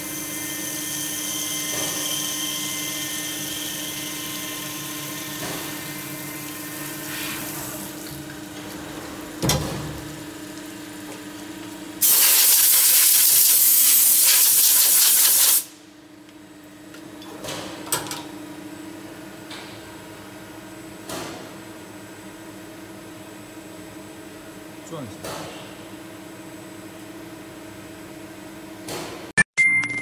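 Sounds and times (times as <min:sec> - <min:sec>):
loud even hiss: 0:12.0 - 0:15.7.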